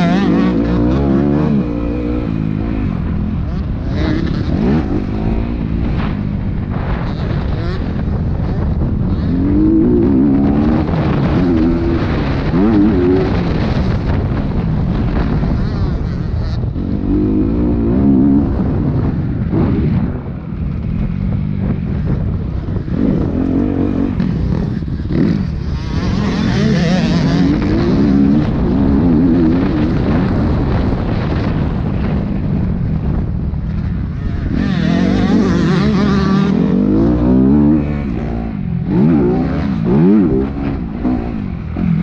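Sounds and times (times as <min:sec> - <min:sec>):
dirt bike engine revving: 0:00.0 - 0:20.4, 0:21.1 - 0:32.2, 0:33.7 - 0:42.0
wind rushing over microphone: 0:00.0 - 0:42.0.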